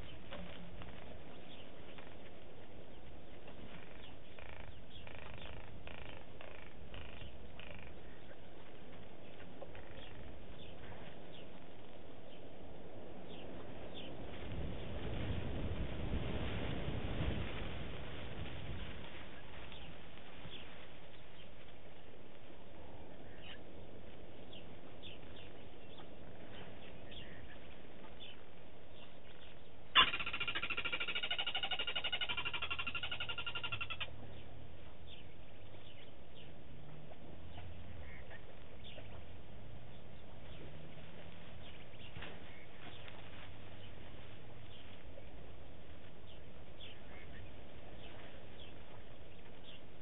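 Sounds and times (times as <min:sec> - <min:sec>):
faint outdoor background: 0:00.0 - 0:50.0
bird chirps: 0:02.9 - 0:11.6, 0:24.5 - 0:36.6.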